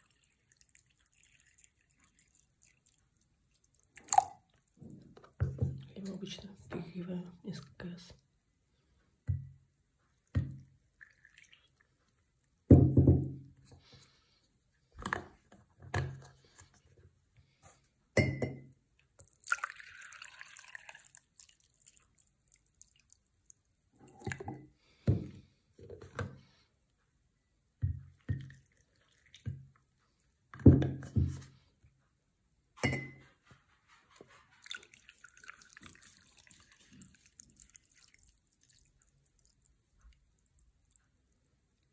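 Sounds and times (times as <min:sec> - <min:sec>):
liquid pouring: 0:00.0 - 0:05.4, 0:10.6 - 0:12.6, 0:19.2 - 0:24.7, 0:28.4 - 0:29.6, 0:34.5 - 0:41.0
glass and teapot clinking: 0:18.2 - 0:18.7, 0:32.8 - 0:33.2.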